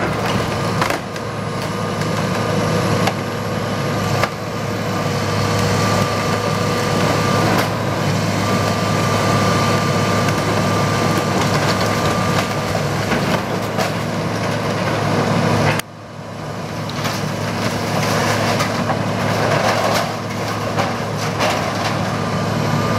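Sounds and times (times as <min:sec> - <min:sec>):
wood cracking and splintering: 0:00.0 - 0:15.8, 0:16.8 - 0:22.3
excavator diesel engine under load: 0:00.0 - 0:22.9
debris crashing down: 0:16.9 - 0:22.2.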